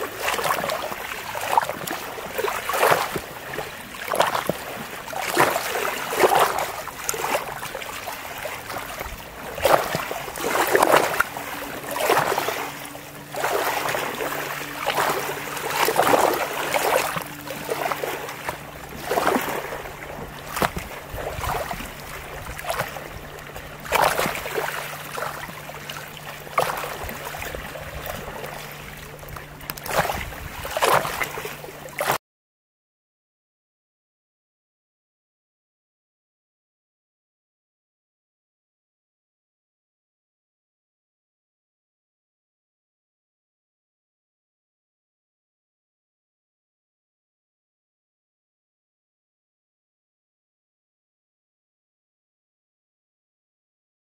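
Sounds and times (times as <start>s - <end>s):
lake waves lapping: 0.0s - 32.2s.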